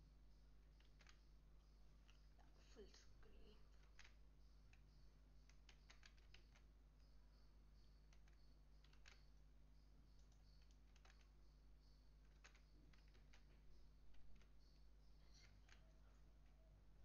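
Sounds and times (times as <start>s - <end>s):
low electrical hum: 0.0s - 17.0s
laptop keyboard clicking: 0.7s - 1.3s, 3.7s - 6.7s, 7.9s - 9.4s, 10.1s - 15.9s.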